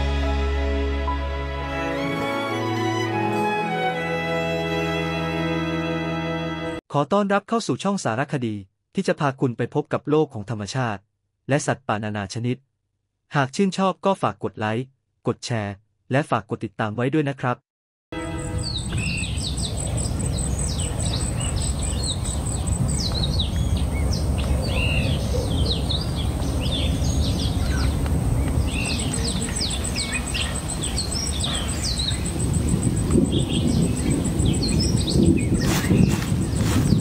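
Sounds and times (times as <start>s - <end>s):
birds chirping: 18.2s - 37.0s.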